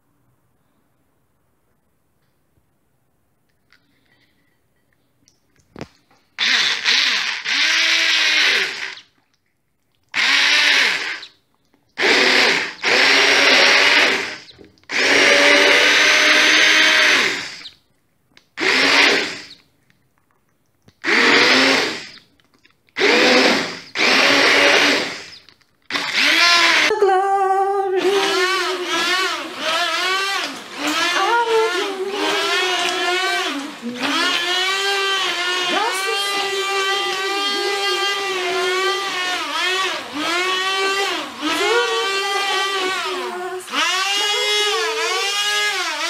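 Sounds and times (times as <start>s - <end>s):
immersion blender running: 6.4s - 9.1s, 10.2s - 11.3s, 12.0s - 17.7s, 18.6s - 19.6s, 21.0s - 22.2s, 23.0s - 26.9s, 28.0s - 46.0s.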